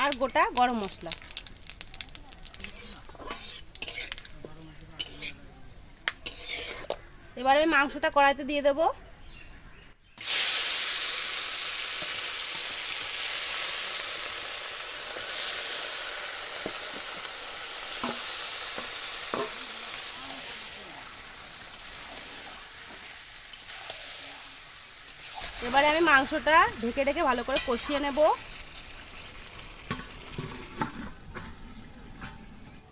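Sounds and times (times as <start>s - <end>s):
meat sizzling in hot oil: 0.0s - 5.4s, 6.0s - 7.1s, 10.2s - 32.7s
metal spatula scraping pan: 2.6s - 4.3s, 5.0s - 5.4s, 6.2s - 7.0s, 27.4s - 28.1s.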